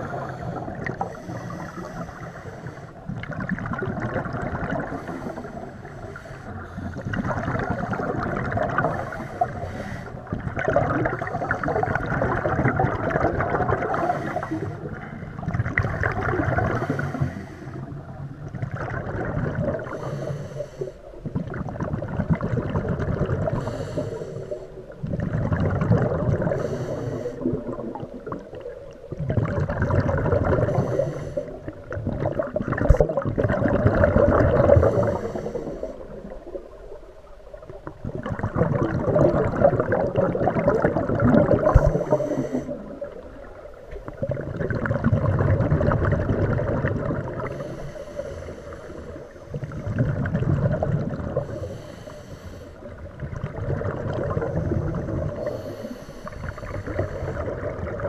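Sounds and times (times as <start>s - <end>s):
exhaled bubbles underwater: 0.0s - 58.0s
regulator inhalation hiss: 19.9s - 21.0s, 26.6s - 27.5s, 30.7s - 31.6s, 41.8s - 42.8s, 47.5s - 49.4s, 51.4s - 52.9s, 55.4s - 57.5s.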